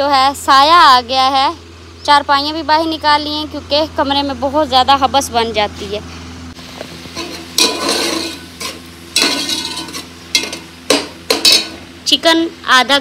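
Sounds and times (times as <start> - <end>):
metal skimmer scraping pot: 7.0 - 11.9.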